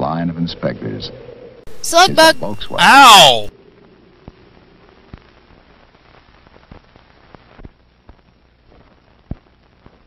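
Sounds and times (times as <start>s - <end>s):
faint low hum: 0.0s - 10.0s
film soundtrack hiss: 0.0s - 10.0s
clicks and pops: 6.5s - 10.0s.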